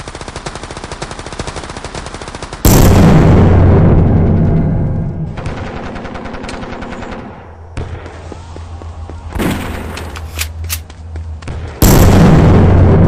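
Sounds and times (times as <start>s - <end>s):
loud explosion: 2.7s - 5.4s, 11.8s - 13.0s.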